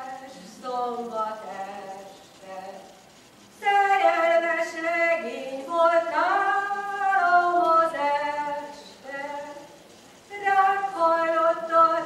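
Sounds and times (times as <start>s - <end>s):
folk choir singing a cappella: 3.6s - 9.7s, 10.3s - 12.0s.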